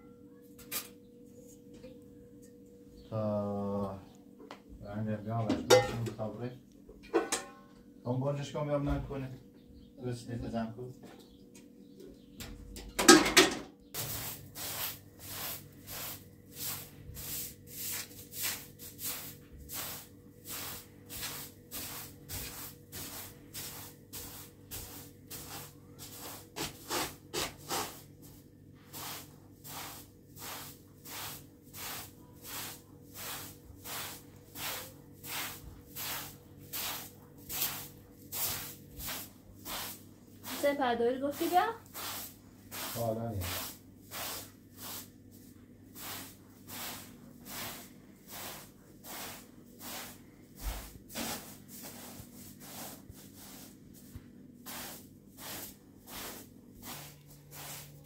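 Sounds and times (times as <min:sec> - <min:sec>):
broom sweeping carpet: 0:13.9 - 0:58.0.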